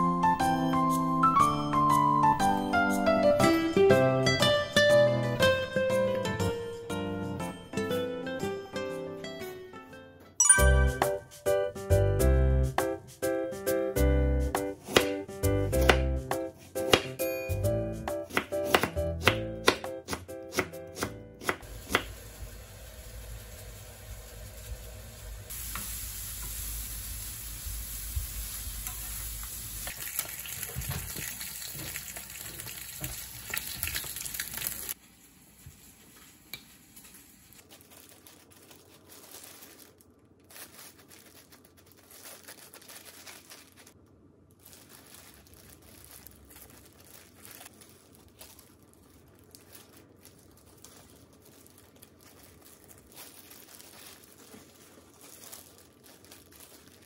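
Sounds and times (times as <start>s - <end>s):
carrots sizzling in a frying pan: 21.6s - 36.3s
plastic wrap crinkling: 36.0s - 57.0s.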